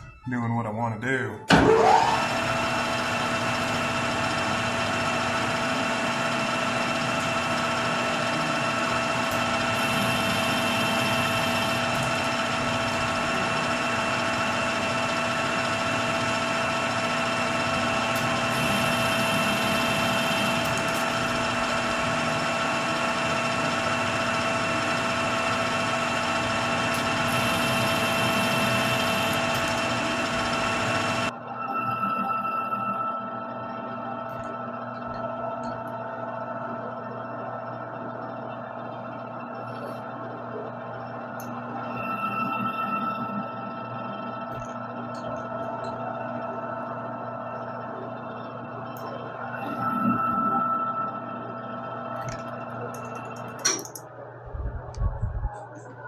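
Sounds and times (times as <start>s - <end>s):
metal lathe motor whining: 1.5s - 54.4s.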